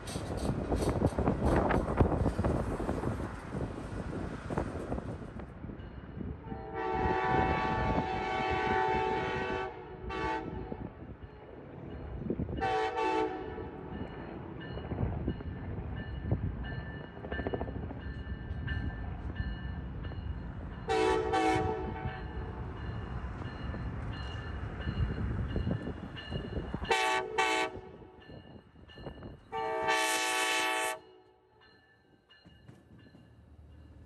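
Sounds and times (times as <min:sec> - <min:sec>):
train rumble: 0:00.0 - 0:31.0
locomotive horn blasts: 0:06.4 - 0:10.8, 0:12.6 - 0:13.8, 0:20.9 - 0:22.4, 0:26.9 - 0:28.1, 0:29.5 - 0:31.4.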